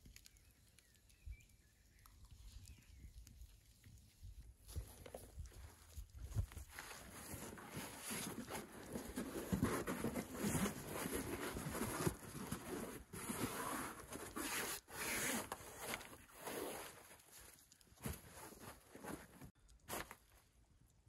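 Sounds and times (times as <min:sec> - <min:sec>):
fabric rustling on grass: 0:04.7 - 0:20.3.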